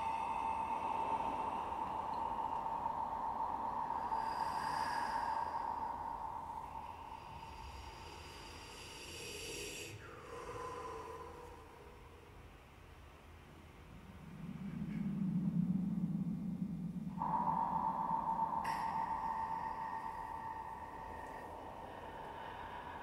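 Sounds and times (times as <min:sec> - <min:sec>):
electroacoustic tones: 0:00.0 - 0:08.2, 0:13.3 - 0:23.0.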